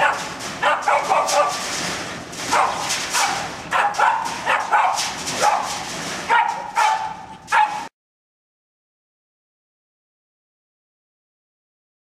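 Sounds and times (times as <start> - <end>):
dog barking: 0.0 - 1.6, 2.5 - 7.9.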